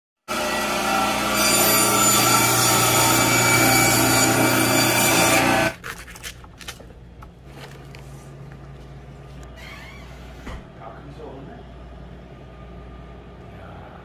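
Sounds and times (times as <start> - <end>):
band saw whining: 0.3 - 5.8.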